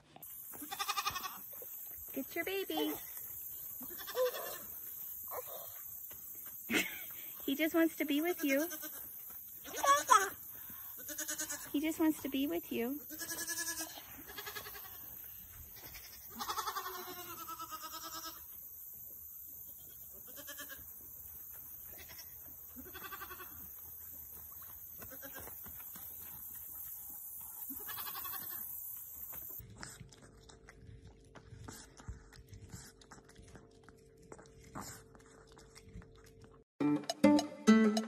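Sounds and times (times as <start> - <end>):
goat kid bleating: 0.6 - 1.6, 3.8 - 5.8, 8.4 - 11.7, 13.0 - 18.5, 19.8 - 20.9, 21.9 - 23.8, 25.0 - 25.6, 27.7 - 28.7.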